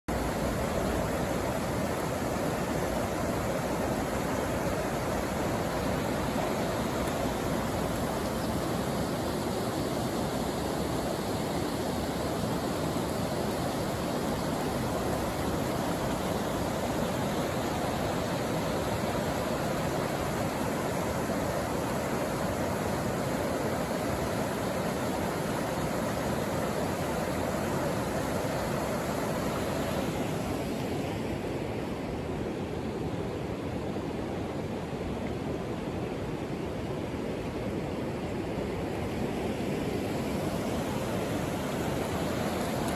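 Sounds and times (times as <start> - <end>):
river rushing over rocks: 0.1 - 42.9.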